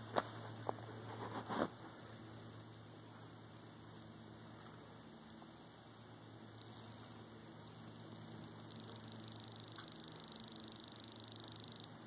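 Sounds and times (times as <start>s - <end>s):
steady low hum: 0.0s - 12.0s
thin chirp-like tone: 6.2s - 12.0s.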